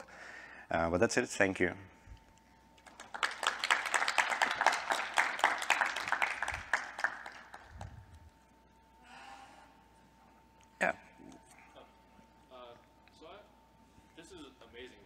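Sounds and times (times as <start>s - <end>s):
audience applauding: 2.8s - 8.0s.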